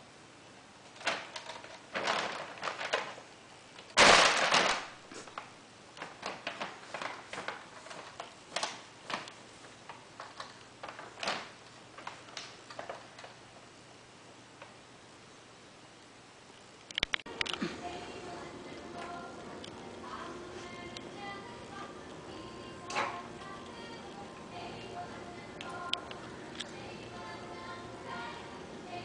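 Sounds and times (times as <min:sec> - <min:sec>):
plastic cat toys tapping and rattling: 0:00.9 - 0:03.3, 0:06.0 - 0:13.4
loud plastic clatter: 0:00.9 - 0:13.4.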